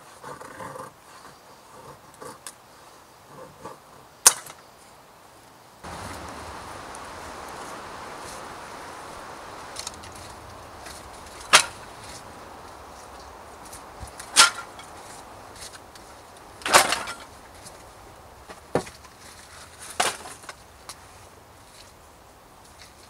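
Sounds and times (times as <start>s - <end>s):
wooden sticks clattering: 6.2s - 17.9s.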